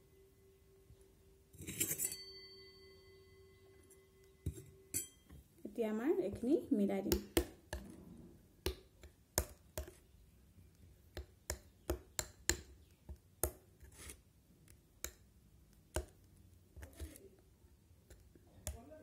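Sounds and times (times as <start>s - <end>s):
metal spoon clinking ceramic bowl: 1.6s - 5.4s.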